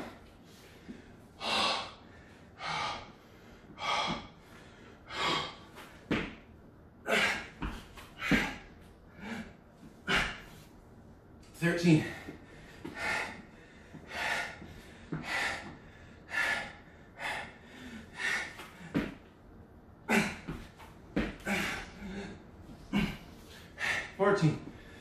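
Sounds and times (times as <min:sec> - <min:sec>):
man breathing hard: 0:00.0 - 0:06.3, 0:07.0 - 0:10.8, 0:11.8 - 0:19.3, 0:20.1 - 0:25.0
dull thuds on exercise mat: 0:06.1 - 0:06.4, 0:18.9 - 0:19.2.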